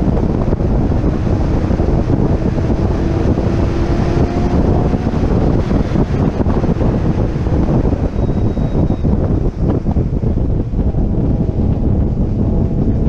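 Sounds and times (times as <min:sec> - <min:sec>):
car engine under power: 0:00.0 - 0:13.0
wind buffeting microphone: 0:00.0 - 0:13.0.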